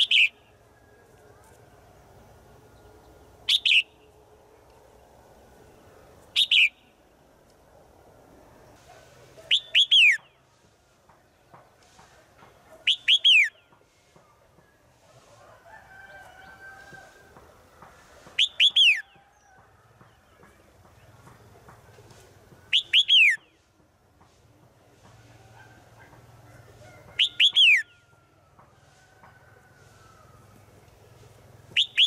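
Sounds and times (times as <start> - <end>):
bird calling falling notes: 27.1 - 28.0, 31.8 - 32.0.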